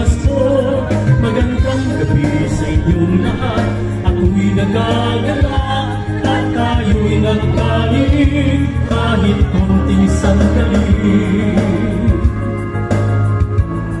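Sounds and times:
steady low bass: 0.0s - 12.8s
instrumental accompaniment: 0.5s - 6.2s.

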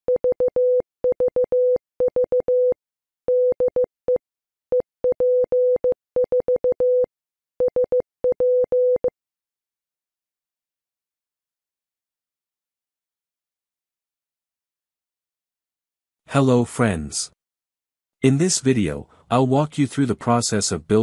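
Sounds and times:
morse code beeps: 0.1s - 9.1s.

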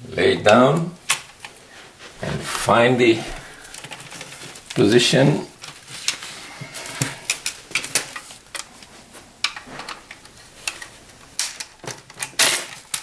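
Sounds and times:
plastic parts clicking: 3.7s - 4.9s, 6.8s - 8.8s, 9.4s - 13.0s.

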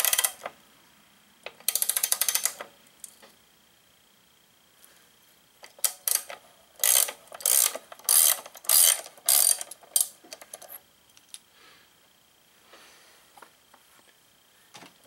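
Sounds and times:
ratchet wrench clicking: 0.0s - 0.5s, 1.6s - 3.2s, 5.6s - 11.4s.

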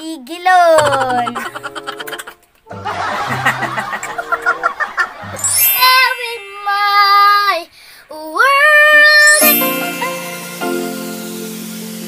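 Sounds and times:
children laughing: 0.7s - 6.8s
background music: 0.8s - 6.0s, 9.3s - 12.0s
child singing sliding notes: 5.4s - 11.2s.

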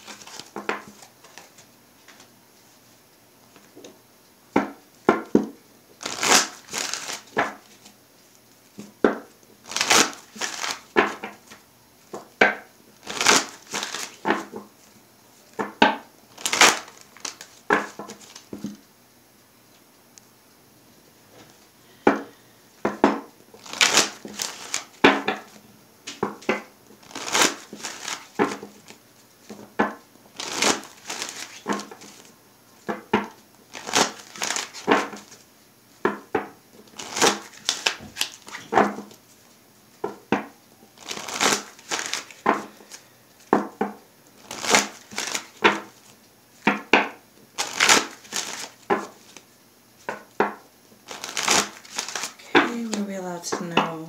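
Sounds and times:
cards being shuffled: 0.0s - 2.3s, 6.0s - 8.0s, 9.7s - 11.6s, 13.0s - 14.6s, 16.3s - 18.7s, 23.6s - 25.5s, 26.2s - 29.6s, 30.4s - 32.3s, 33.7s - 35.4s, 36.9s - 39.4s, 41.0s - 43.5s, 44.4s - 46.8s, 47.6s - 50.2s, 51.1s - 53.0s.

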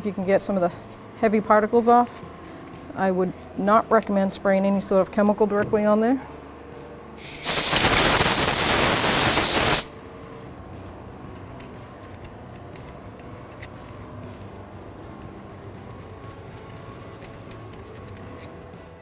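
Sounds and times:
air blow gun blast: 7.2s - 9.9s.

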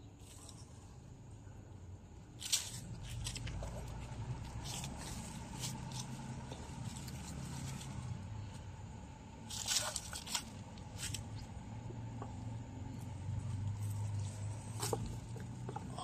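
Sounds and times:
low steady hum: 0.0s - 16.0s
scrapes and rustles: 2.3s - 8.8s, 9.4s - 12.4s, 13.0s - 16.0s.

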